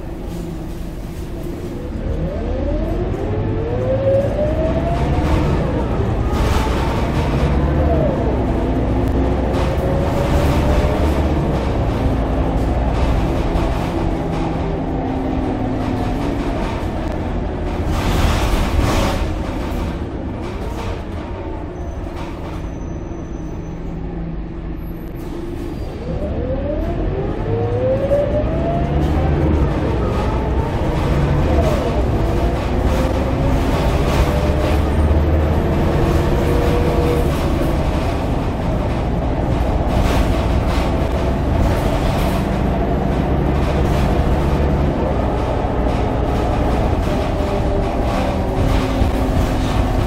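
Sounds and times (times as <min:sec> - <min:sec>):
bus engine rumble and whine: 0:00.0 - 0:50.0
road noise: 0:00.0 - 0:50.0.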